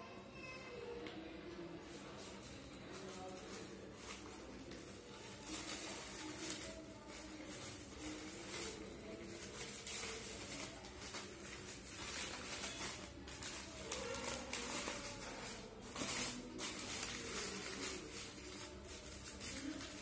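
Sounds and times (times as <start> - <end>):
paper and plastic crinkling: 1.1 - 20.0.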